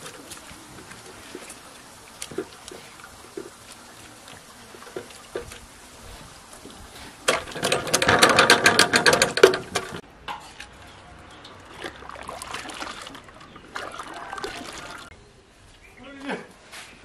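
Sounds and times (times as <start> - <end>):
wet fabric squelching and splashing: 0.0 - 6.4, 11.5 - 15.1
dye bath bubbling and stirring: 0.0 - 15.1.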